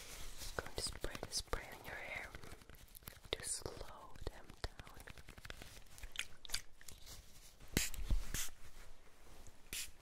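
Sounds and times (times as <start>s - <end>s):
spray bottle spritzing: 7.8s - 8.6s, 9.7s - 10.0s.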